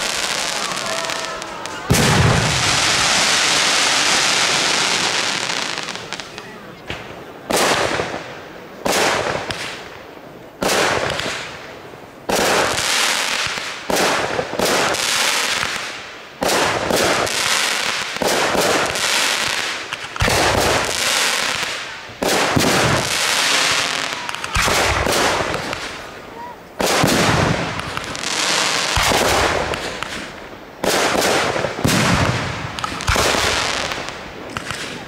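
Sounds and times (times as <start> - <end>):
fireworks bangs with hiss: 0.0 - 35.0.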